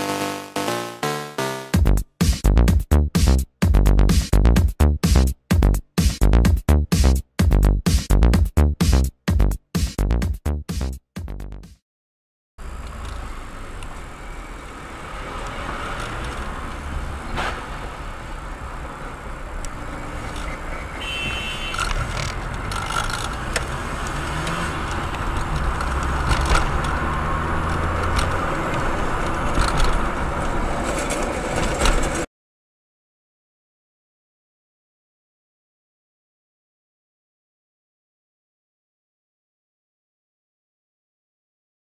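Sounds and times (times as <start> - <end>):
electronic music: 0.0 - 11.8
car engine and road noise: 12.6 - 32.3.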